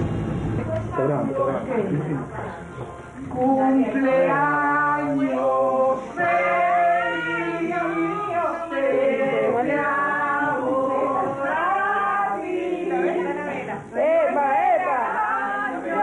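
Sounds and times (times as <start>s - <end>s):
group of people singing: 0.0s - 16.0s.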